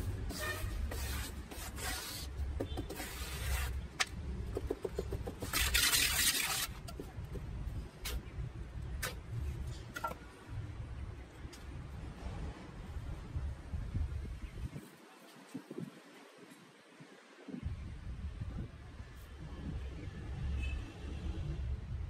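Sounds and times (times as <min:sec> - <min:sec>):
trowel scraping cement: 0:00.3 - 0:04.1, 0:05.2 - 0:07.1.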